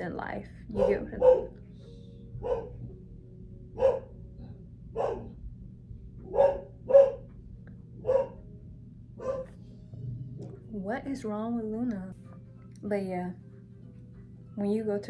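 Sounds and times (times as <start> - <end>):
dog barking: 0.7 - 1.6, 2.4 - 2.8, 3.8 - 4.2, 4.9 - 5.4, 6.2 - 7.3, 8.0 - 8.4, 9.2 - 9.6.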